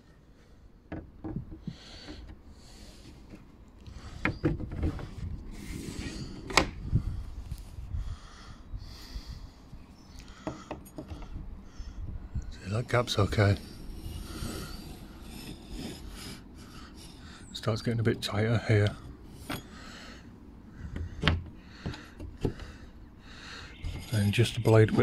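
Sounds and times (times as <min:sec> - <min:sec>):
wooden doors knocking and clicking: 0:00.9 - 0:02.2
steel blade scraping along door gap: 0:13.2 - 0:17.9, 0:23.6 - 0:25.0.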